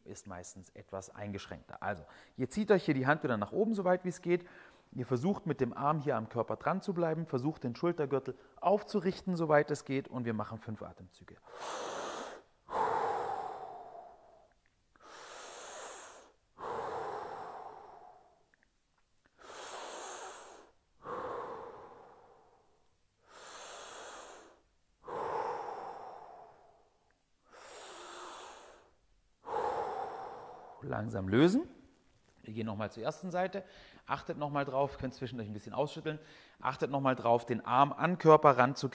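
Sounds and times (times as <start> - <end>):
man breathing deeply: 11.4 - 18.5, 19.2 - 30.9, 33.7 - 34.0, 36.2 - 36.6.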